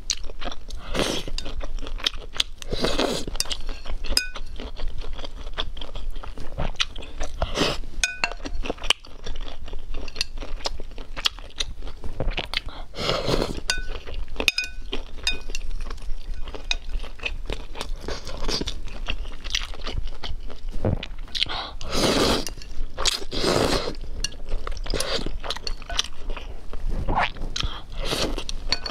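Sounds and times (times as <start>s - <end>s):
chewing and crunching: 0.0s - 28.9s
chopsticks clinking against bowl: 3.3s - 4.7s, 8.0s - 8.7s, 10.0s - 10.6s, 13.6s - 17.4s, 24.2s - 26.2s, 28.6s - 28.9s.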